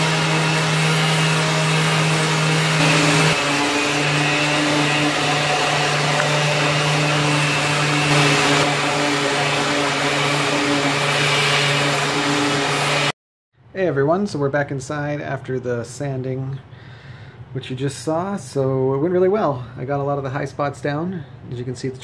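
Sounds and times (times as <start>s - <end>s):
electric sander on plastic: 0.0s - 13.1s.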